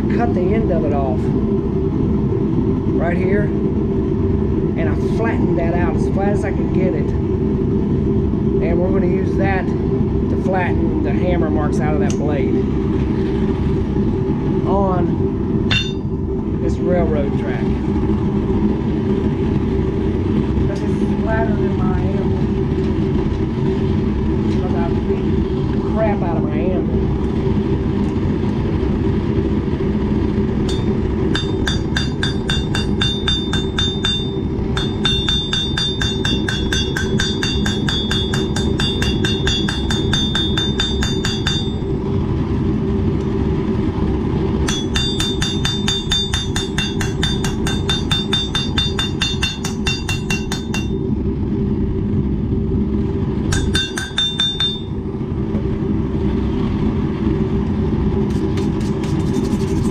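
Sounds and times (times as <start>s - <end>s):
steady low hum: 0.0s - 59.9s
hammer ringing on anvil: 15.7s - 16.1s, 30.7s - 41.9s, 44.7s - 51.0s, 53.5s - 54.9s.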